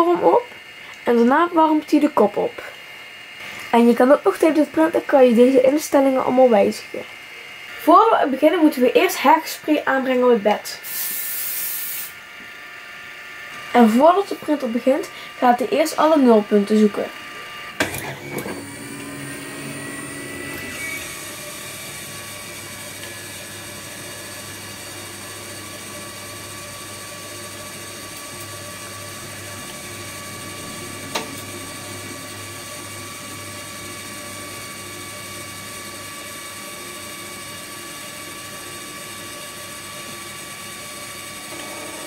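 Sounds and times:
stepper motors whining: 13.2 - 42.0.

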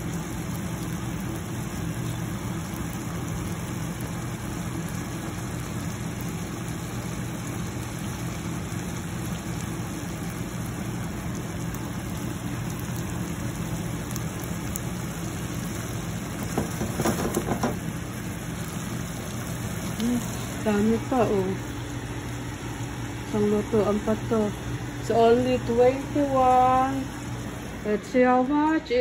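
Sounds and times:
food simmering in a pan: 0.0 - 28.0
low constant hum: 0.0 - 29.0.

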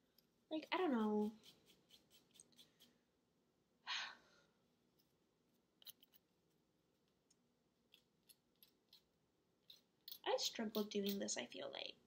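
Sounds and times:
nail file scraping fingernails: 1.1 - 3.0, 7.9 - 10.4.

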